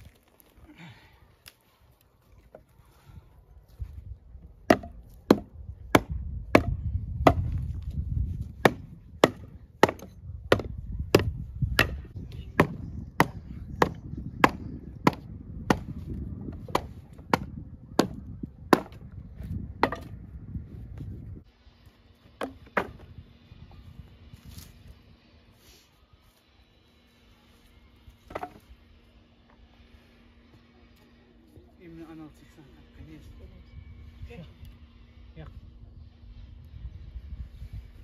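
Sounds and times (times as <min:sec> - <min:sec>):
axe chopping wood: 0:04.6 - 0:07.8, 0:08.6 - 0:19.0, 0:19.8 - 0:20.2, 0:22.4 - 0:23.0, 0:28.2 - 0:28.7.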